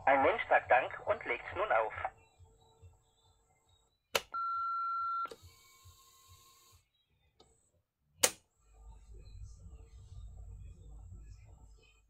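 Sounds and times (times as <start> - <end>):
answering machine beep: 4.3 - 6.6.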